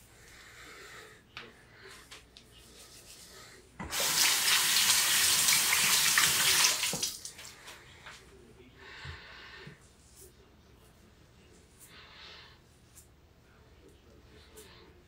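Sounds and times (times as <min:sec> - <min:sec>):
water running from tap: 0:03.9 - 0:07.4.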